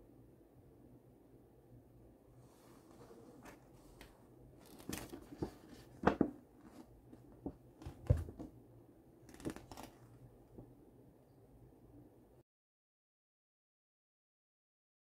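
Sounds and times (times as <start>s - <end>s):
paper leaflet rustling: 2.5s - 8.5s, 9.3s - 10.1s.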